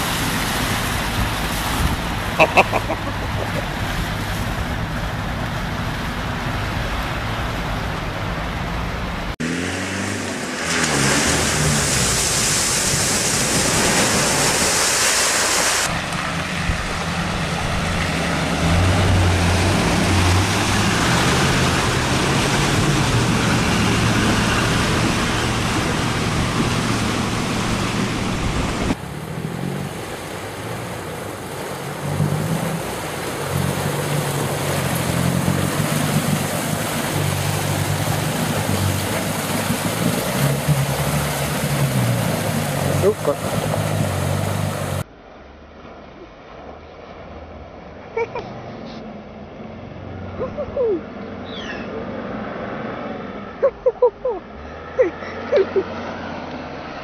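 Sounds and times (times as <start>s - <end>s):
engines pulling under load: 0.0s - 57.0s
water rushing and splashing: 0.0s - 57.0s
hissing water spray: 9.5s - 45.0s.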